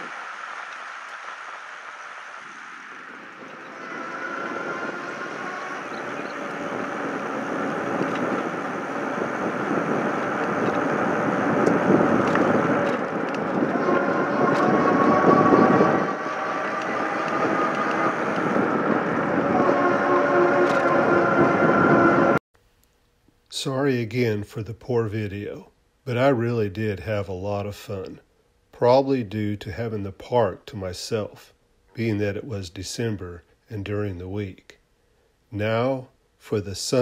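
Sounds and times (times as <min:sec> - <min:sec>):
thin wavering whine: 0:00.0 - 0:22.4
wind rushing over microphone: 0:00.0 - 0:22.4.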